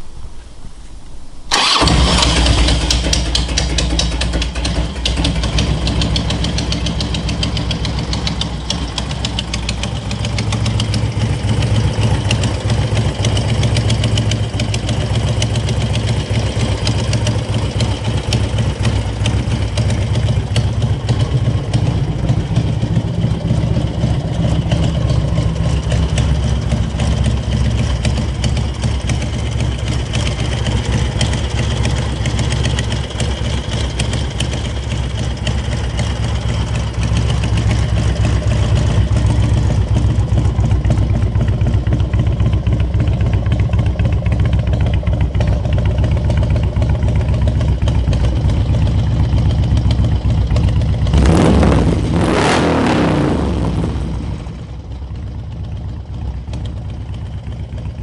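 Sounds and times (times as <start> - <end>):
motorcycle engine idling: 0.0 - 52.2, 53.3 - 58.0.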